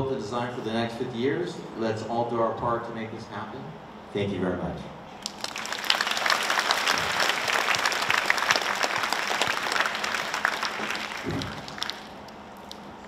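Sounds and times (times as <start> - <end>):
audience applauding: 5.2 - 12.8.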